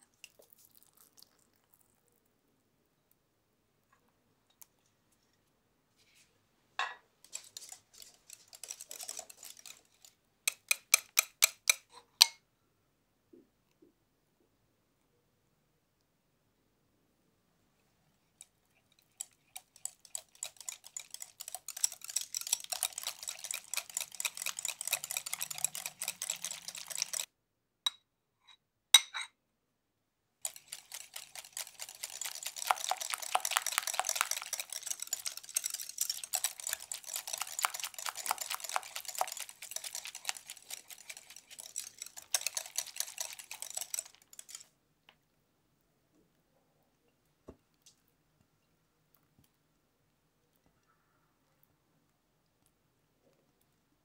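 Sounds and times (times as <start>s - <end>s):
whisk rattling in glass bowl: 7.2s - 11.9s, 18.4s - 27.3s, 30.4s - 44.7s.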